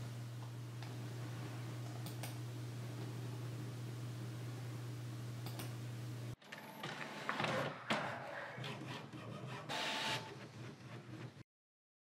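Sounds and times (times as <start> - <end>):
printer whirring and clattering: 6.4 - 11.4.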